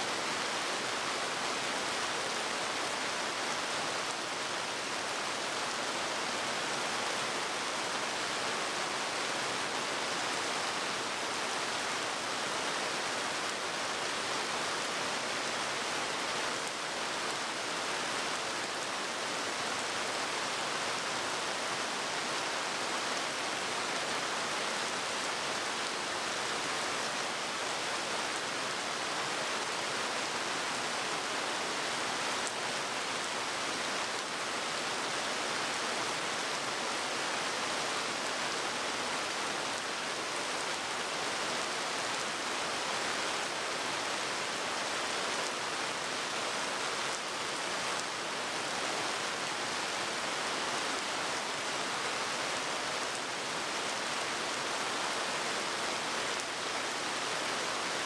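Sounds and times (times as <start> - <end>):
heavy rain on pavement: 0.0 - 58.0.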